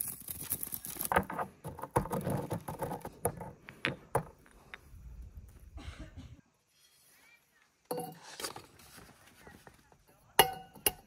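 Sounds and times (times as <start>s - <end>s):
peppercorns crunching in mortar: 0.0s - 3.1s
pestle scraping: 0.0s - 4.3s.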